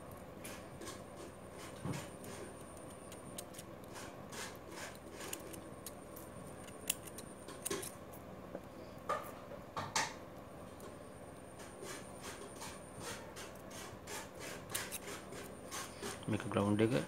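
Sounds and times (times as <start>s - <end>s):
small scissors snipping wire: 4.9s - 8.0s.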